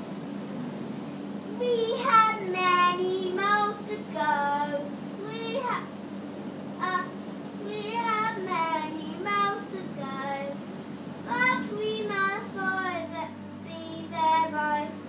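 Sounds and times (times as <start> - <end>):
low steady hum: 0.0 - 15.0
child singing: 1.6 - 5.9, 6.8 - 10.6, 11.3 - 15.0.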